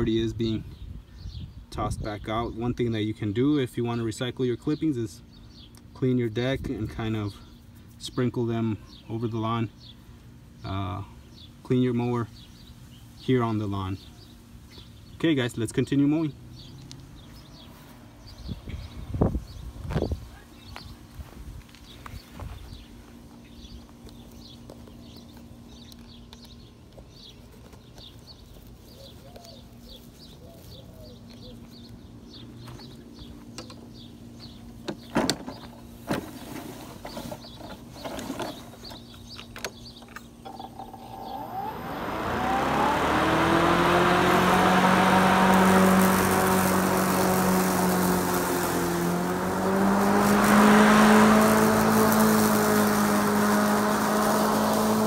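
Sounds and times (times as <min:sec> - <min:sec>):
small birds chirping: 0:00.0 - 0:55.0
electric lawn mower hum: 0:40.4 - 0:55.0.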